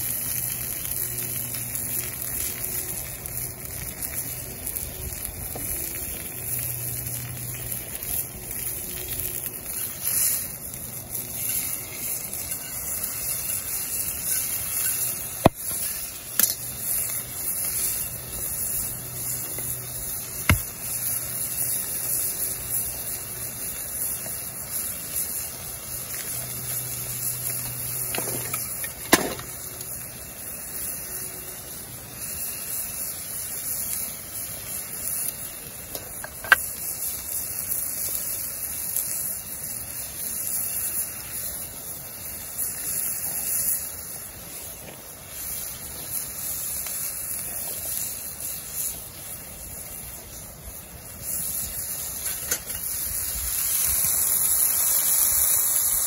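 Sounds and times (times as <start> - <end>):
burning wood popping: 0.0 - 56.0
meat sizzling in a skillet: 0.0 - 56.0.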